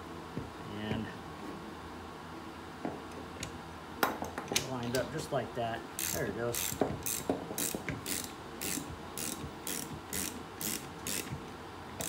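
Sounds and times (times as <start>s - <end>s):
socket ratchet clicking: 6.0s - 11.4s.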